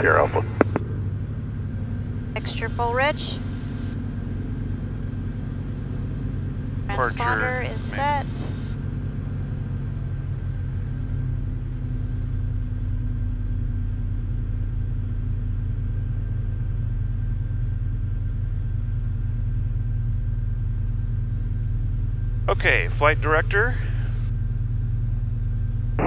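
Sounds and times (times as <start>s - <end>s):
aircraft piston engine idling: 0.0s - 25.8s.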